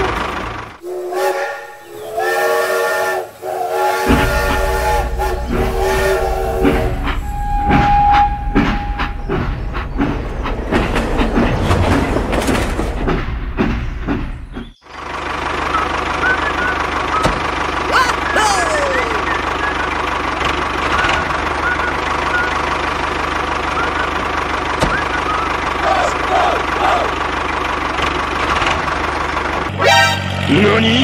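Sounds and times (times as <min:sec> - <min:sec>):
running train rumble and clatter: 0:00.0 - 0:31.0
train horn chord blasts: 0:00.8 - 0:09.2, 0:29.7 - 0:30.5
held whistle note: 0:00.8 - 0:09.5.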